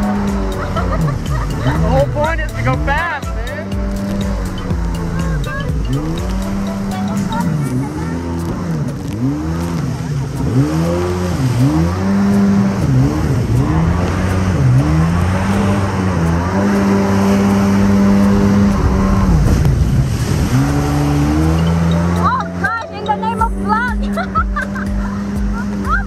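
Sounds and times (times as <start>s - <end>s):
jet ski engine running: 0.0s - 26.0s
water rushing and spraying: 0.0s - 26.0s.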